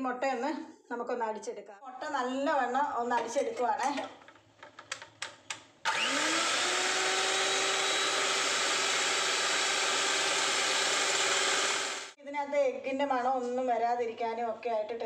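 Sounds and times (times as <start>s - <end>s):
electric hand mixer whining: 5.9s - 12.2s.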